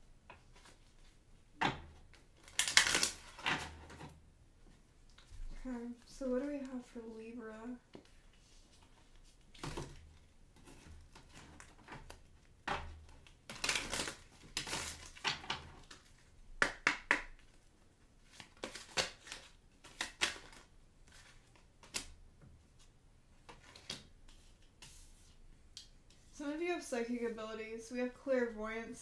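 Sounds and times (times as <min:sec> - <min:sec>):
cards shuffling and snapping: 0:02.4 - 0:03.8, 0:13.1 - 0:17.6, 0:18.3 - 0:22.2.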